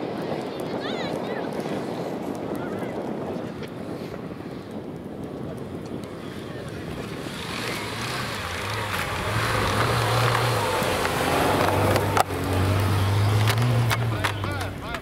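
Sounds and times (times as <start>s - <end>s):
car engine driving through snow: 6.3s - 15.0s.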